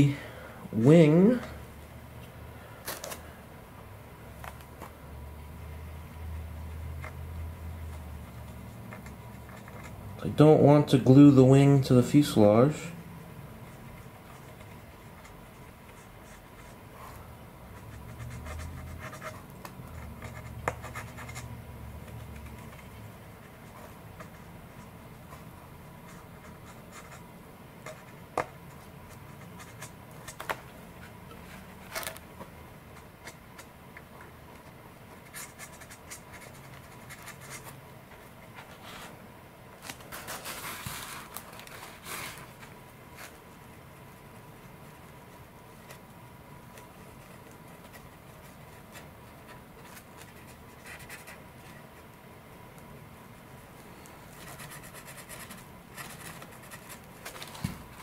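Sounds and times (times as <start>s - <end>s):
cotton swab scratching: 13.7s - 27.3s.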